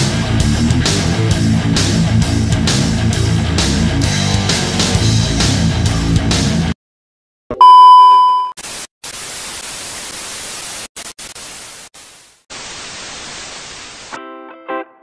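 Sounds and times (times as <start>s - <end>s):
plucked electric guitar notes: 0.0s - 5.3s
loud steady high beep: 7.6s - 8.6s
white noise static hissing: 8.6s - 14.2s.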